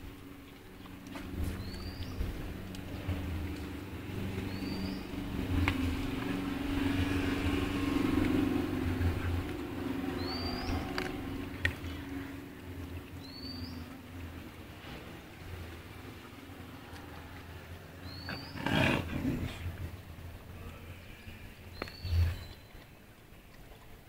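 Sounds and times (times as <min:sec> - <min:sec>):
vehicle engine humming: 0:00.0 - 0:22.2.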